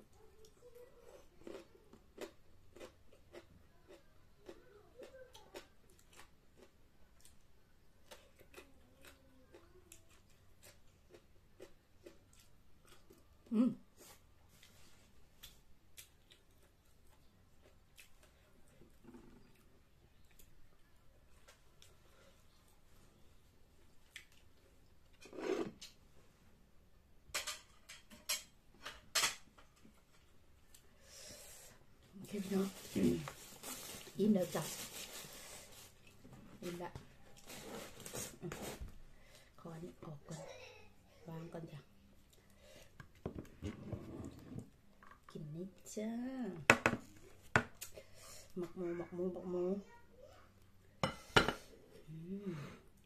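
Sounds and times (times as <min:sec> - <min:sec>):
dishes scraping: 0:25.2 - 0:25.8
dishes clinking: 0:51.0 - 0:51.7.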